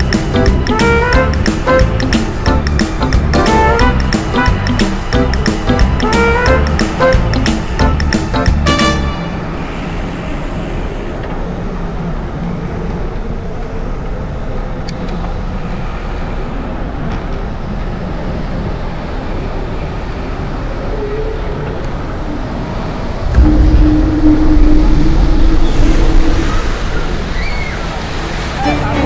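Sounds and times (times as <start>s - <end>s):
city road traffic: 0.0s - 29.0s
wind rumble on microphone: 11.2s - 28.6s.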